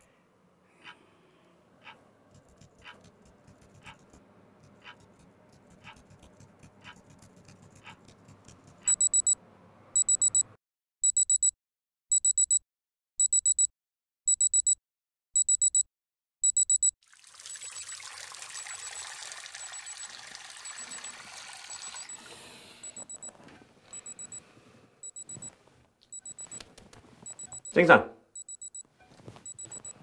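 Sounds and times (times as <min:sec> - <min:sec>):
alarm clock beeping: 0:08.9 - 0:09.4, 0:10.0 - 0:11.5, 0:12.1 - 0:12.6, 0:13.2 - 0:13.7, 0:14.3 - 0:14.8, 0:15.4 - 0:16.9, 0:18.6 - 0:24.4, 0:25.0 - 0:26.6, 0:27.3 - 0:28.8, 0:29.4 - 0:30.0.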